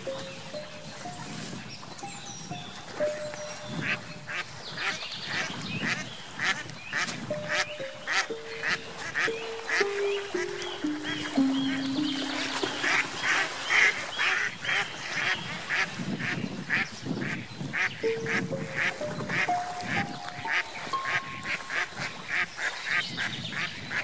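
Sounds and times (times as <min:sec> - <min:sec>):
slow rising music notes: 0:00.0 - 0:04.0, 0:07.3 - 0:13.9, 0:18.0 - 0:22.4
ducks quacking: 0:02.5 - 0:24.0.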